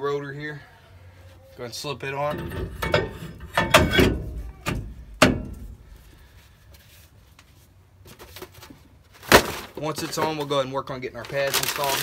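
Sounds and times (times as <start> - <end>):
metal clunks: 2.2 - 6.2.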